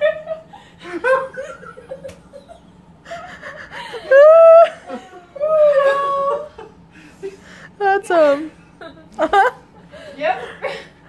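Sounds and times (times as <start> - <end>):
group of people laughing: 0.0 - 6.8, 8.8 - 9.7.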